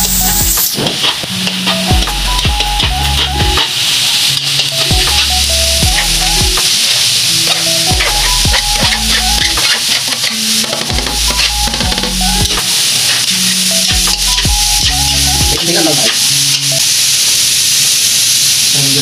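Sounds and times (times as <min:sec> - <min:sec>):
vegetables sizzling in hot oil: 0:00.0 - 0:19.0
metal spatula scraping wok: 0:07.2 - 0:16.7.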